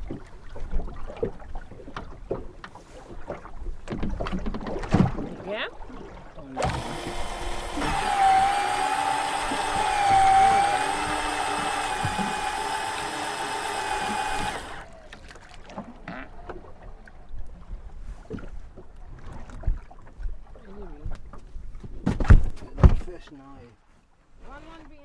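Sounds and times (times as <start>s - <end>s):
fishing reel motor whining: 6.6s - 15.1s.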